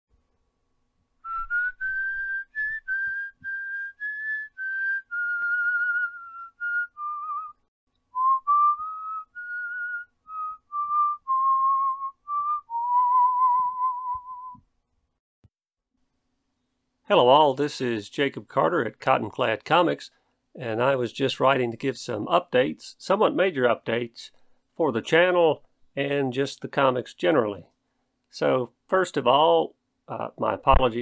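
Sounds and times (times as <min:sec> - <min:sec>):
person whistling a slow tune: 0:01.2 - 0:07.6, 0:08.2 - 0:14.6.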